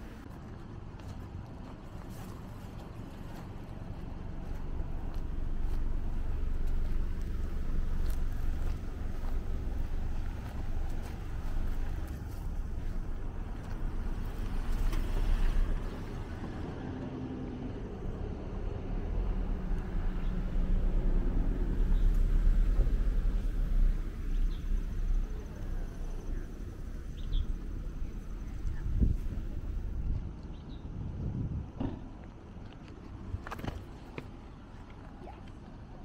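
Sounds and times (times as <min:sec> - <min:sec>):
vehicle engine humming: 0:00.0 - 0:30.8
wind buffeting microphone: 0:17.9 - 0:32.2.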